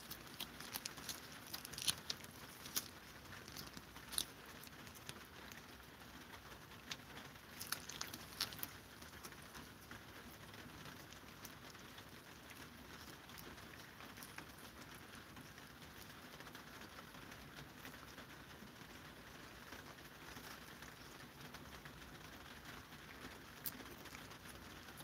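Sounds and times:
cats licking and lapping: 0:00.0 - 0:25.0.

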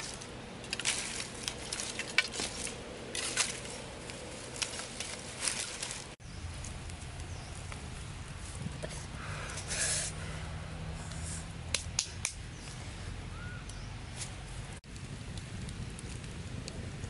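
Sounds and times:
twig fire burning: 0:00.0 - 0:17.0
sharp snaps of fire: 0:11.0 - 0:12.8, 0:13.6 - 0:17.0.

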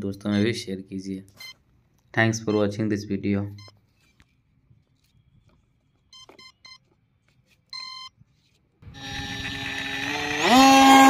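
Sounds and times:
electric motor buzzing hum: 0:08.9 - 0:11.0.

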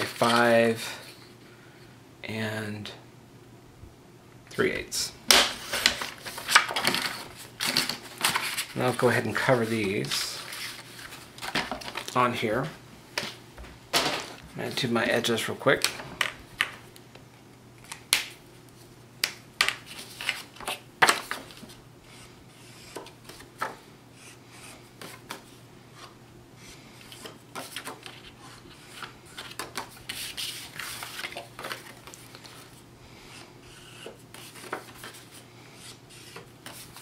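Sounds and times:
marker scraping on paper: 0:22.1 - 0:23.1, 0:24.2 - 0:25.2, 0:33.3 - 0:37.0.

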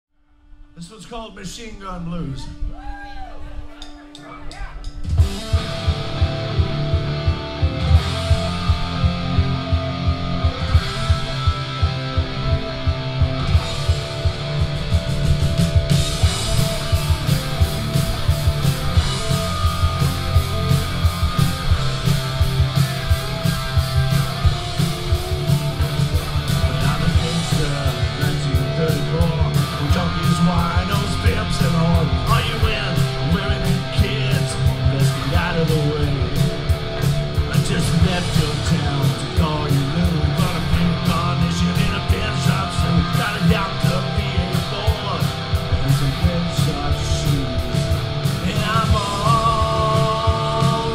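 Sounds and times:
distorted electric guitars: 0:00.2 - 0:50.9
bass guitar: 0:00.5 - 0:50.9
driving drum kit beat: 0:03.6 - 0:50.9.

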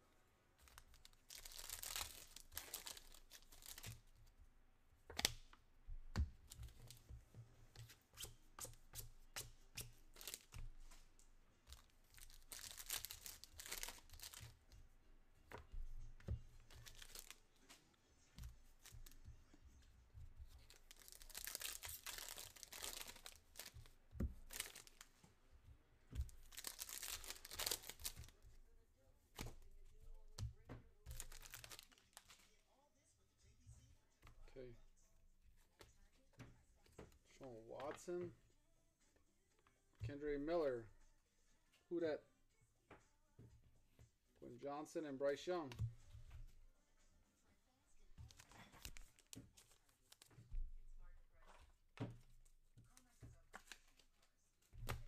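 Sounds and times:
foil wrappers tearing and crinkling: 0:00.7 - 0:04.0, 0:11.8 - 0:14.4, 0:16.8 - 0:17.4, 0:20.6 - 0:25.1, 0:26.3 - 0:28.3, 0:31.1 - 0:32.4.

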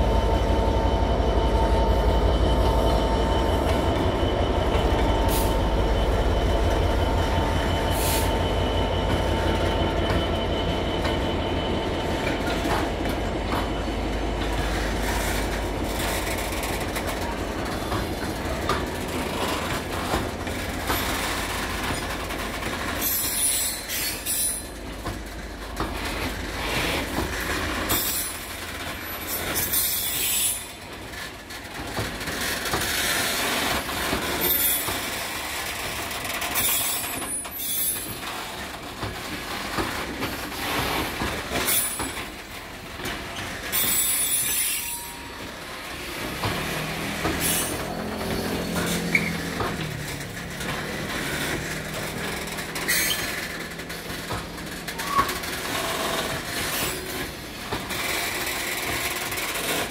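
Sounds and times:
diesel locomotive rumble: 0:00.0 - 0:59.9
wheel squeal: 0:22.9 - 0:24.8, 0:29.0 - 0:30.8, 0:36.6 - 0:38.5, 0:43.4 - 0:45.5, 0:47.3 - 0:49.8, 0:52.2 - 0:53.6, 0:54.8 - 0:57.2
wagon wheels clattering on rails: 0:46.1 - 0:59.9.

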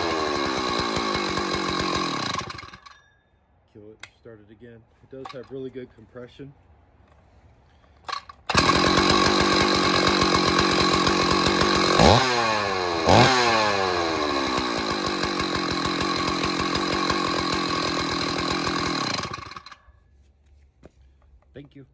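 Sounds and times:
chainsaw idling and revving: 0:00.0 - 0:02.9, 0:08.5 - 0:19.9.

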